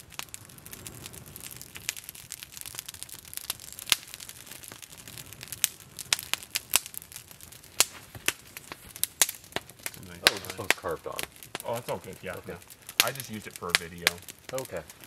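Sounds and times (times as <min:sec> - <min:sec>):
campfire crackling and popping: 0:00.0 - 0:15.0
faint hiss: 0:04.0 - 0:15.0.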